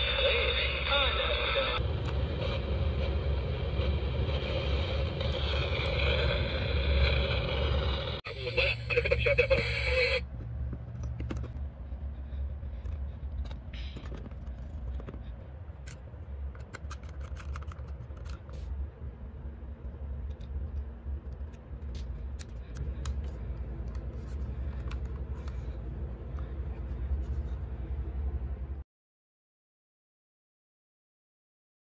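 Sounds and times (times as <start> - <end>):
steady low hum: 0.0 - 28.8
clicks handling plastic parts: 15.8 - 18.5.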